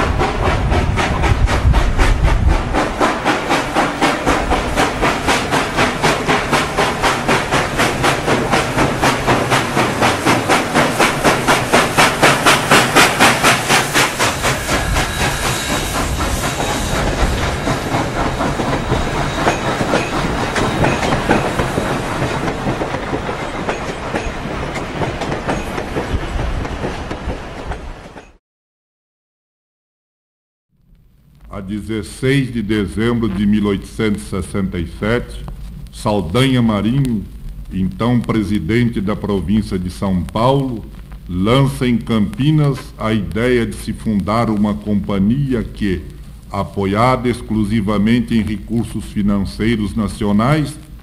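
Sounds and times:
steam locomotive exhaust chuffing: 0.0 - 27.5
wheels clicking over rail joints: 17.0 - 28.4.

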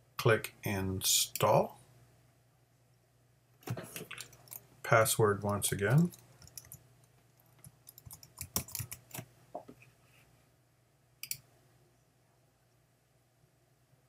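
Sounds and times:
keyboard typing: 5.5 - 6.8, 7.4 - 9.3.

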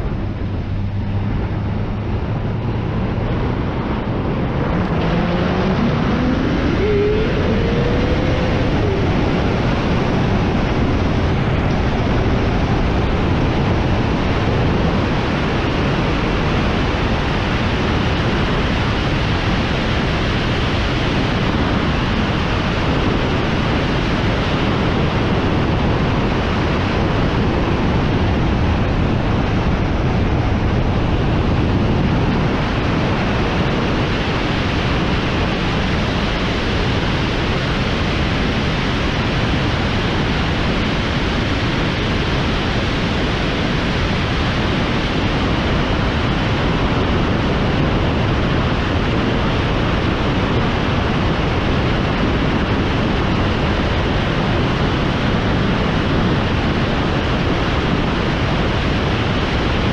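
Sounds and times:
road noise: 0.0 - 59.9
wind rushing on microphone: 0.0 - 59.9.

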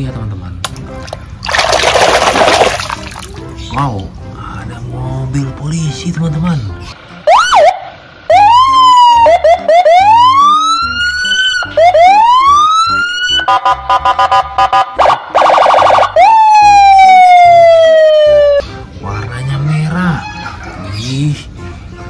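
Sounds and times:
police siren: 7.2 - 18.6.

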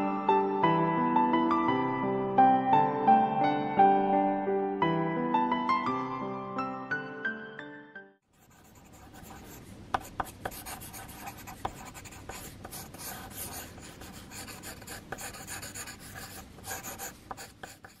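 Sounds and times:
pencil scratching on paper: 8.4 - 18.0.

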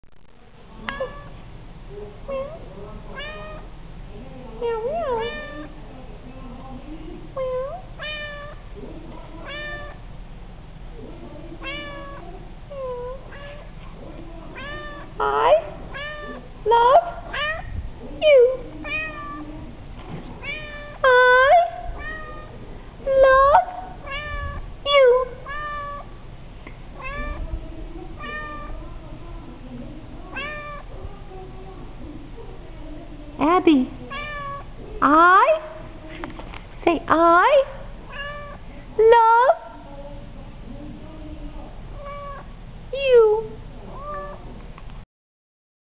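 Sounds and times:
cat meowing: 0.8 - 1.4, 3.2 - 3.7, 4.7 - 5.7, 7.4 - 8.6, 9.4 - 10.0, 11.6 - 13.7, 14.5 - 16.4, 17.2 - 17.8, 18.8 - 19.5, 20.4 - 22.6, 23.3 - 26.1, 27.0 - 27.4, 28.2 - 28.8, 30.3 - 30.9, 34.1 - 34.7, 38.1 - 38.6, 42.0 - 42.5, 43.9 - 44.5.

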